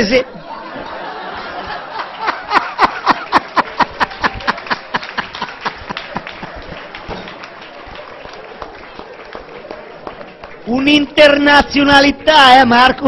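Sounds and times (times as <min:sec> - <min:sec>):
hearty laughter: 0:00.3 - 0:07.1.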